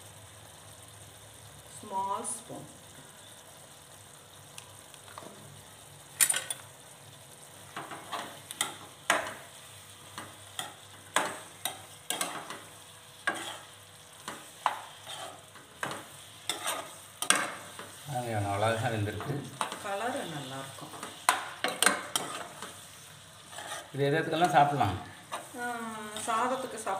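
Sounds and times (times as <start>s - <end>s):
food sizzling: 0.0s - 26.9s
spatula scraping frying pan: 7.8s - 18.0s, 18.6s - 26.9s.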